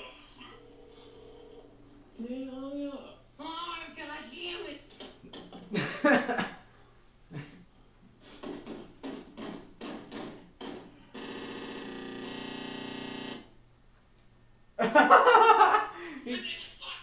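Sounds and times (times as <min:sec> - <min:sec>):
stuttering clip from television: 0:08.2 - 0:13.6
steady buzzing tone: 0:09.0 - 0:13.6.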